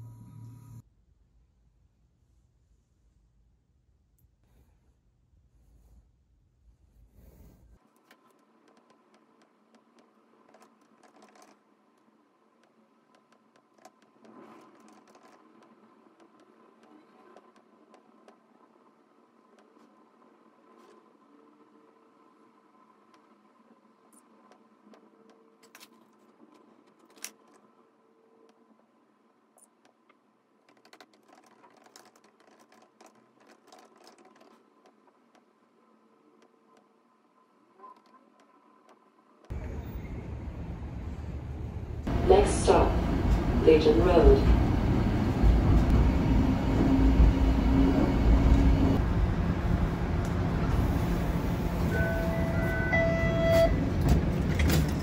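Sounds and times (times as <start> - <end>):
laptop keyboard typing: 10.5 - 11.6, 30.7 - 34.6.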